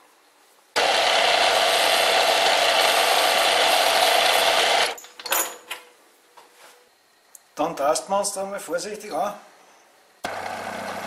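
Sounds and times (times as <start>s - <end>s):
metal lathe gear whir: 0.8s - 5.0s.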